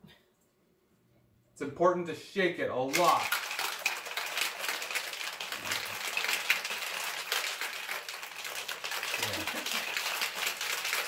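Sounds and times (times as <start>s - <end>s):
ice rattling in metal cocktail shaker: 2.9s - 11.0s.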